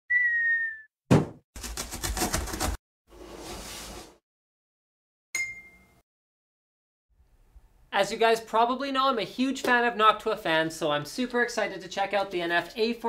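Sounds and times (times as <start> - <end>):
falling whistle-like tone: 0.1 - 0.9
thump: 1.1 - 1.4
bright ringing ding: 5.4 - 6.0.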